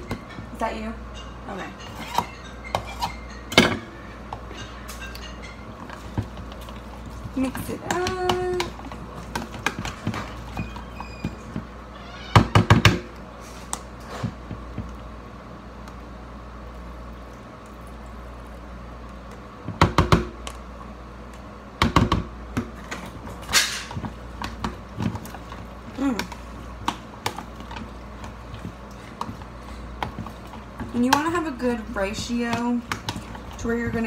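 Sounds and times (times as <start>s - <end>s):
metal utensil clinking glass bowl: 4.4s - 6.0s.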